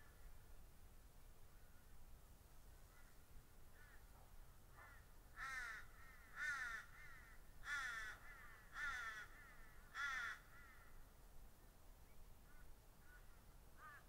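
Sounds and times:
crow cawing: 2.9s - 4.1s, 4.7s - 11.0s, 12.5s - 14.0s.

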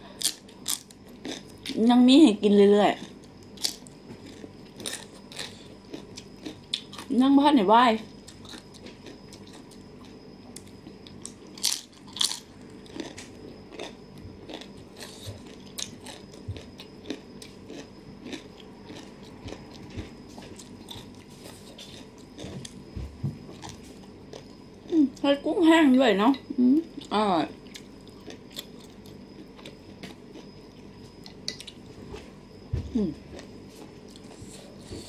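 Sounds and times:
crunchy bites and chewing: 0.1s - 1.8s, 3.0s - 7.1s, 8.1s - 24.9s, 27.6s - 31.9s.

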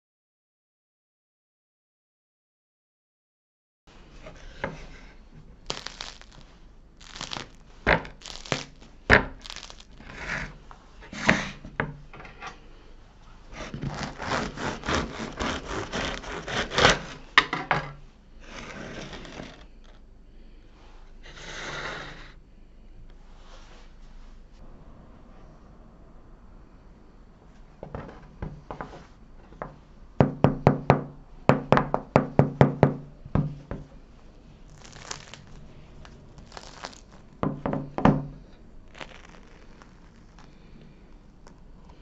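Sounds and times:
bread crust crackling: 5.5s - 10.6s, 13.5s - 17.3s, 34.5s - 37.5s, 38.4s - 42.0s
bread knife sawing: 9.4s - 11.5s, 13.5s - 17.4s, 18.4s - 19.6s.

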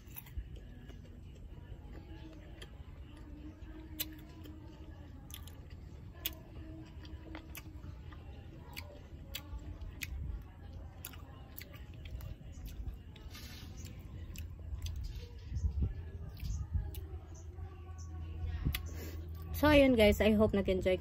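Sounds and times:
person chewing food: 0.0s - 15.1s.

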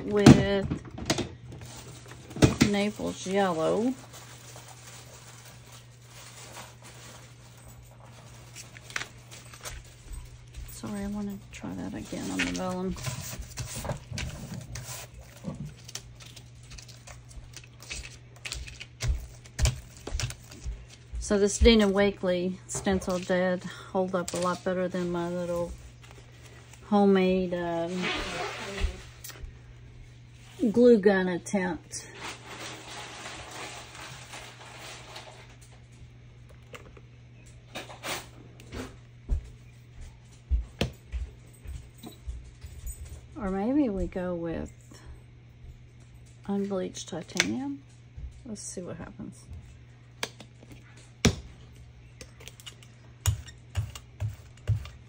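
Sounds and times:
low electrical hum: 0.0s - 55.0s
faint scraping and handling: 27.7s - 29.3s.

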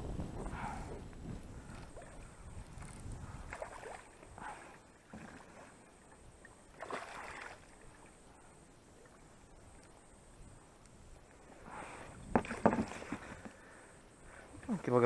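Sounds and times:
fish thrashing water splashes: 6.7s - 7.8s.

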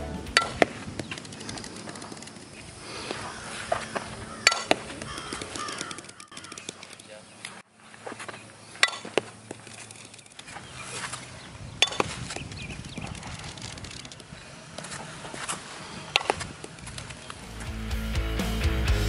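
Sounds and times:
bat hitting softballs: 3.6s - 6.8s, 8.8s - 9.6s, 11.8s - 12.5s, 16.1s - 16.8s.

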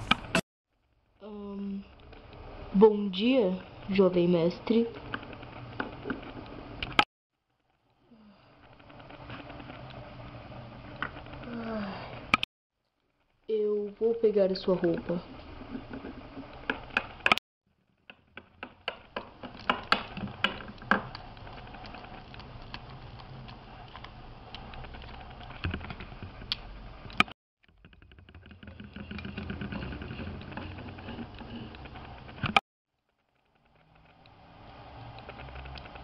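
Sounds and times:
plastic toys clicking and tapping: 18.0s - 32.6s.

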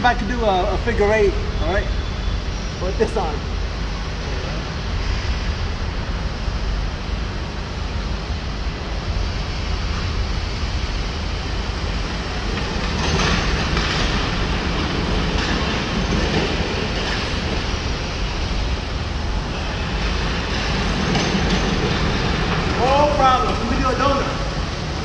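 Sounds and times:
rattling clatter: 12.5s - 17.7s.

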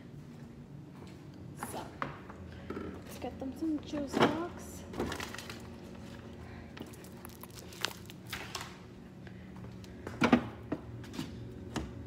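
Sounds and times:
refrigerator hum: 0.0s - 12.0s
plastic rustling: 5.0s - 6.2s, 6.8s - 8.8s.

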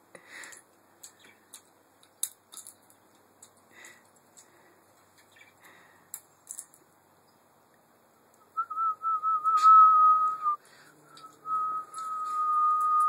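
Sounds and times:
high whistling: 8.4s - 13.0s.

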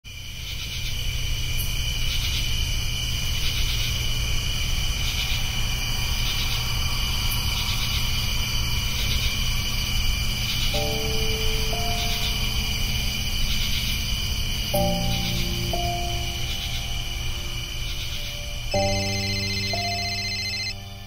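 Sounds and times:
insects chirping: 0.1s - 21.0s.

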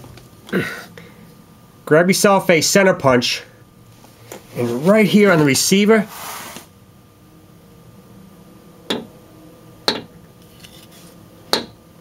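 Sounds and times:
punch tapping metal: 8.9s - 9.1s, 9.9s - 10.2s, 11.5s - 11.8s.

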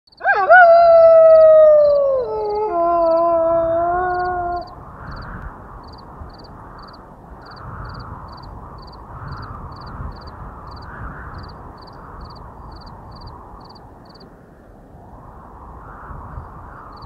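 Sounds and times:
rushing wind: 0.1s - 17.0s
cricket chirping: 4.1s - 14.3s, 15.8s - 17.0s.

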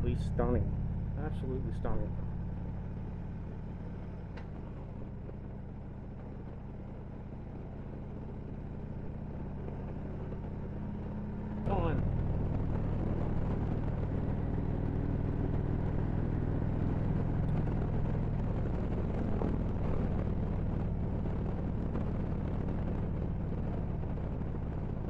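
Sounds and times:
motorcycle engine cruising: 0.0s - 25.0s
wind and road noise: 0.0s - 25.0s.

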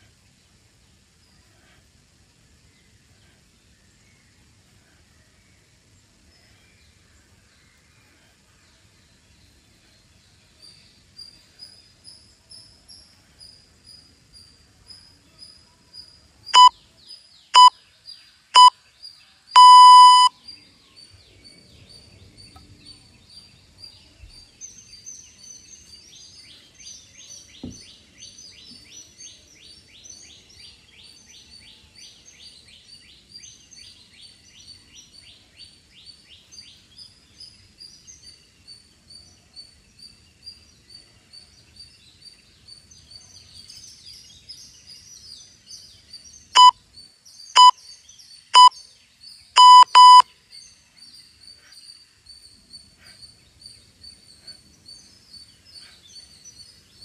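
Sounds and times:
birds chirping: 0.0s - 57.0s
interval timer beeping: 19.6s - 20.3s, 49.6s - 50.2s.

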